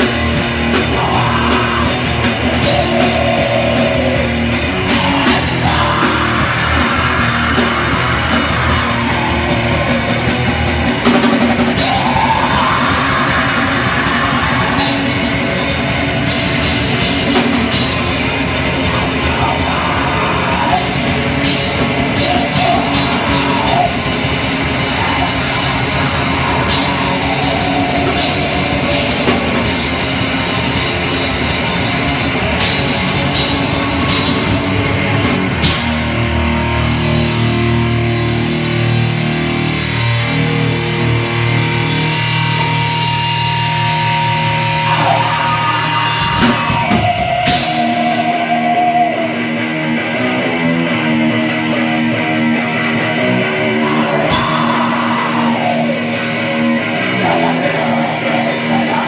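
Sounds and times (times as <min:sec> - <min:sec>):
fast drum kit: 0:00.0 - 0:50.1, 0:53.6 - 0:59.0
distorted electric guitar: 0:00.0 - 0:59.0
harsh screamed vocals: 0:00.5 - 0:17.4, 0:18.4 - 0:31.6, 0:43.0 - 0:50.3, 0:53.2 - 0:59.0.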